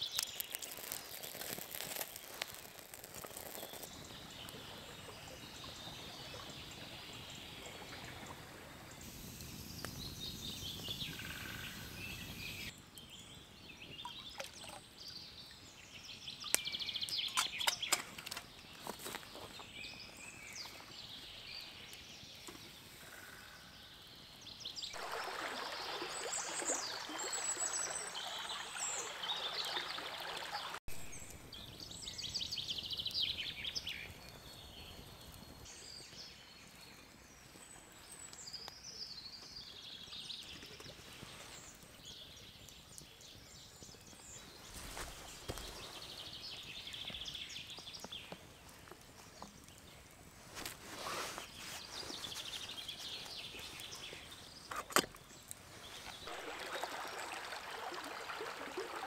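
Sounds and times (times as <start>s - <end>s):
sharp cracks: 0.0s - 4.0s
woodland birds singing: 0.0s - 25.0s, 25.9s - 56.6s
shallow stream running: 0.0s - 59.0s.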